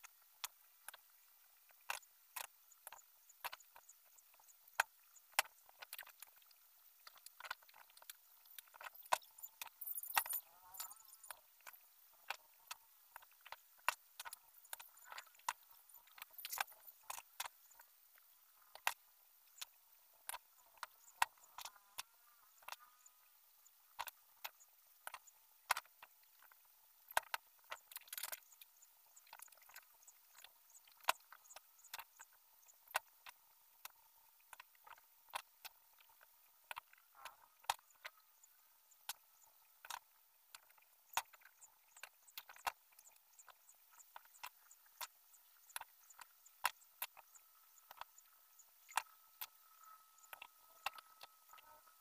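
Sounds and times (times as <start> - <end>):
wire cage ribs clicking: 1.9 - 19.0.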